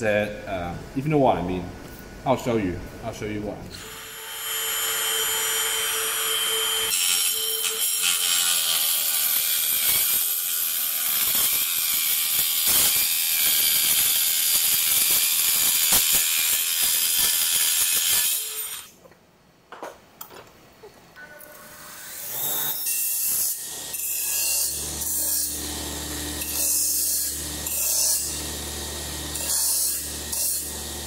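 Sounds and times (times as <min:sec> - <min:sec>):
circular saw motor whine: 0:03.8 - 0:07.8
saw blade cutting metal: 0:03.8 - 0:18.9, 0:21.5 - 0:31.0.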